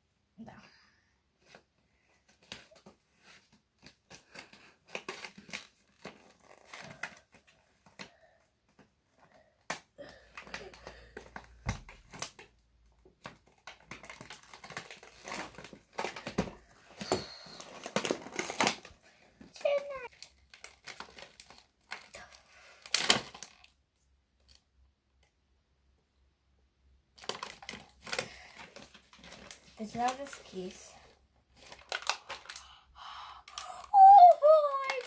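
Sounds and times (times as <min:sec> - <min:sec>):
plastic wrapping crinkling: 0:02.3 - 0:08.2, 0:10.1 - 0:23.8, 0:27.2 - 0:35.0.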